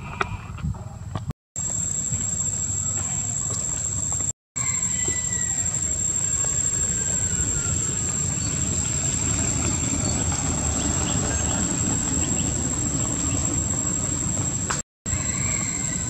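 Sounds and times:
high-pitched insect drone: 1.6s - 16.0s
low rumbling noise: 5.2s - 16.0s.

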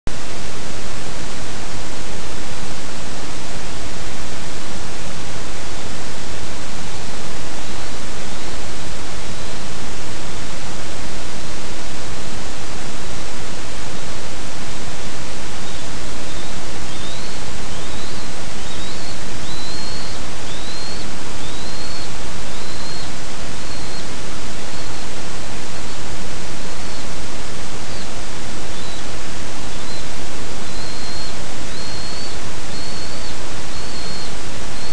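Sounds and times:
loud steady hiss: 0.1s - 34.9s
faint high bird chirps: 15.6s - 26.1s, 26.7s - 34.9s.

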